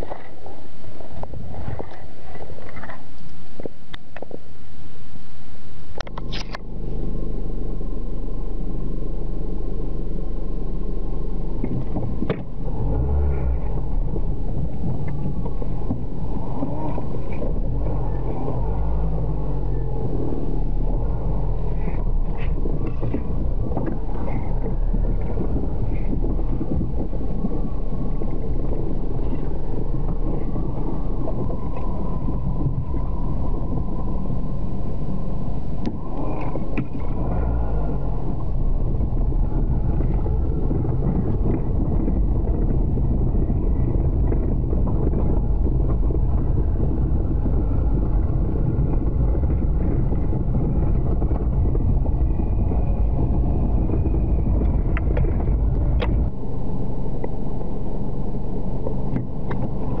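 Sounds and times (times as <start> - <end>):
vehicle engine rumbling: 0.0 - 60.0.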